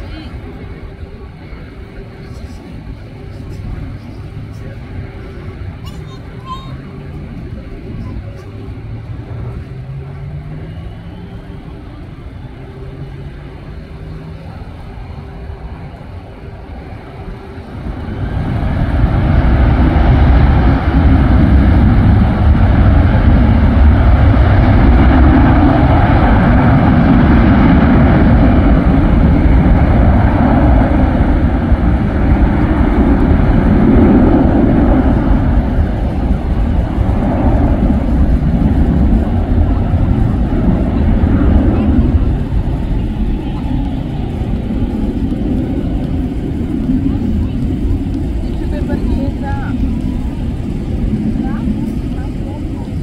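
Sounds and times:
jet engines roaring: 0:00.0 - 0:53.0.

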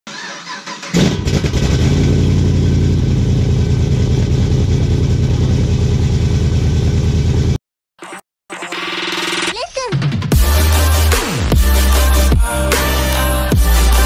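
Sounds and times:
engine cranking: 0:00.1 - 0:01.9.

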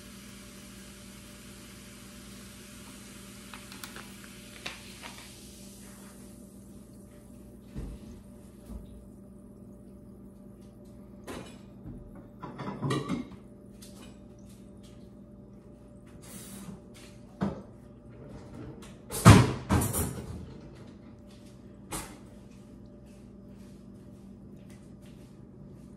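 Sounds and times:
faint steady hum: 0:00.0 - 0:25.9
food containers clicking and rustling: 0:03.5 - 0:05.3.

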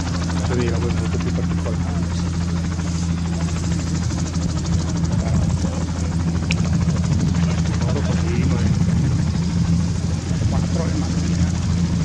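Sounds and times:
helicopter rotor beating: 0:00.0 - 0:12.0
helicopter turbine hum: 0:00.0 - 0:12.0.

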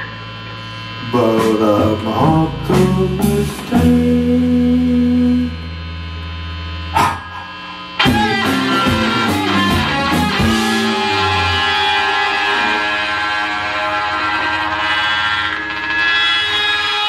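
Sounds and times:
strummed electric guitar chords: 0:00.0 - 0:17.0
rock band playing live: 0:08.0 - 0:17.0.

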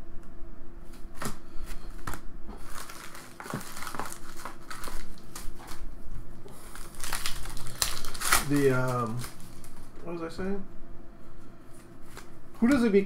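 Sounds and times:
foil wrappers crinkling: 0:01.2 - 0:09.9.

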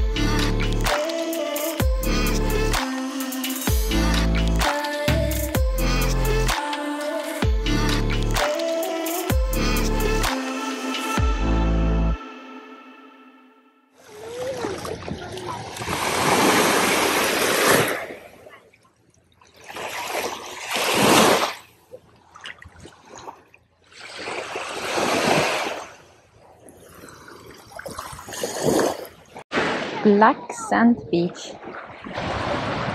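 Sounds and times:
small waves washing onto beach: 0:14.0 - 0:18.5, 0:31.4 - 0:32.9.

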